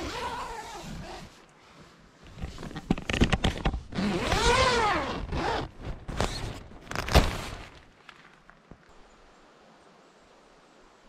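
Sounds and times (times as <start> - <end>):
tent zipper being pulled: 0.0 - 1.4, 2.3 - 7.8
tent fabric rustling: 0.0 - 8.4.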